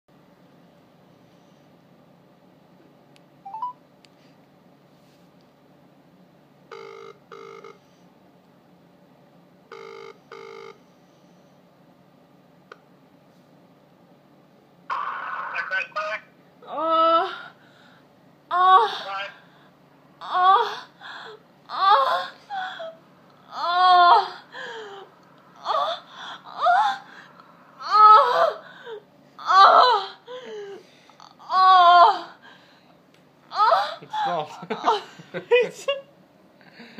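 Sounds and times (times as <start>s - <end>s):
phone ringback tone: 3.5s - 3.8s, 6.7s - 7.8s, 9.7s - 10.8s.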